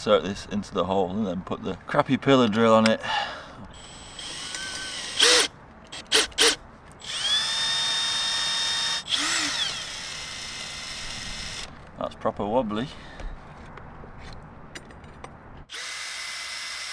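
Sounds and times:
electric drill motor whine: 0:03.8 - 0:11.7, 0:15.7 - 0:16.9.

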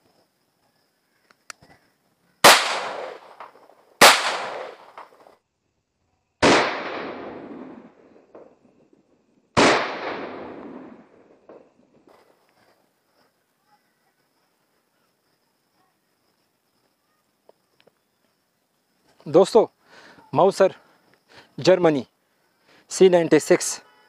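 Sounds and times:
pistol gunshots with echo: 0:02.4 - 0:05.2, 0:06.4 - 0:08.5, 0:09.6 - 0:11.7.

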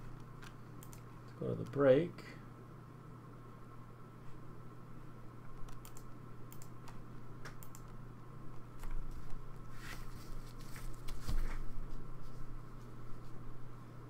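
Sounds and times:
steady low hum: 0:00.0 - 0:14.0
computer keyboard typing: 0:05.6 - 0:07.0.

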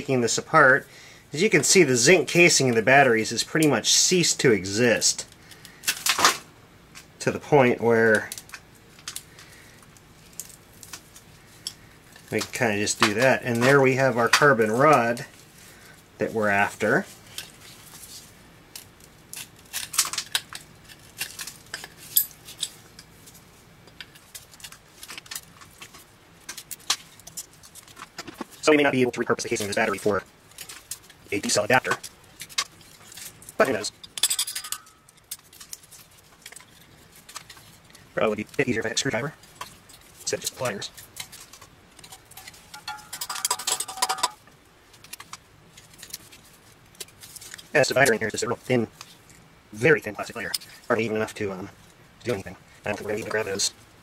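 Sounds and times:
casing bits clinking on metal: 0:32.5 - 0:35.4, 0:42.1 - 0:44.4.

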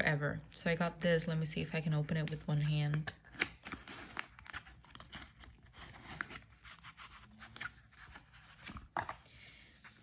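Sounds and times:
packaging crinkling and tearing: 0:03.1 - 0:08.8.

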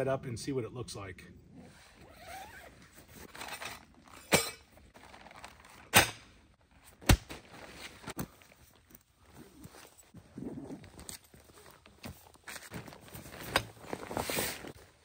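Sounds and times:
tarp rustling: 0:04.9 - 0:05.9, 0:07.4 - 0:15.0.

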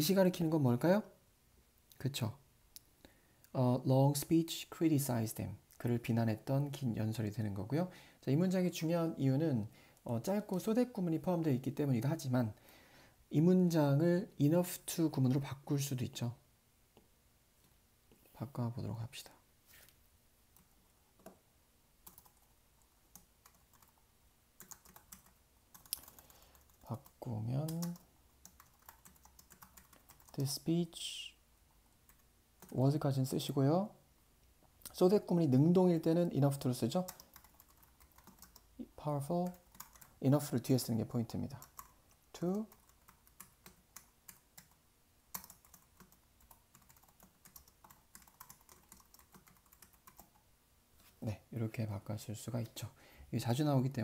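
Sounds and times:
keyboard typing clicks: 0:24.6 - 0:30.4, 0:37.1 - 0:38.6, 0:39.4 - 0:40.1, 0:42.7 - 0:50.4.

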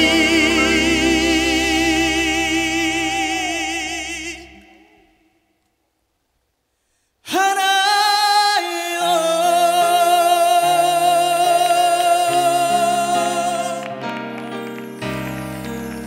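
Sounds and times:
live band playing chords: 0:00.0 - 0:02.2
man singing with vibrato: 0:00.0 - 0:05.5, 0:07.2 - 0:14.3.

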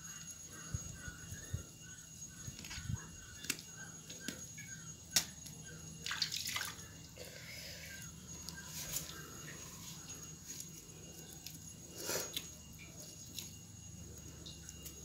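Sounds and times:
hands plucking wet feathers: 0:02.5 - 0:04.4, 0:05.1 - 0:06.9.

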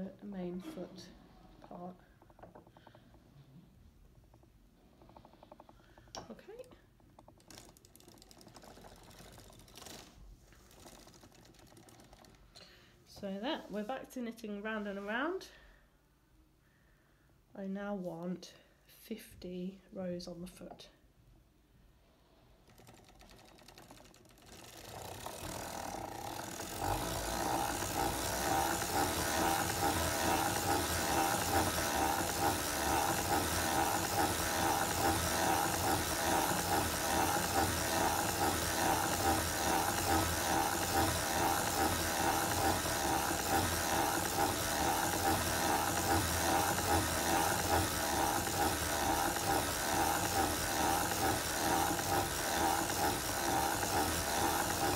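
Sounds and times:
sock machine clattering: 0:06.9 - 0:12.6, 0:22.6 - 0:54.9.

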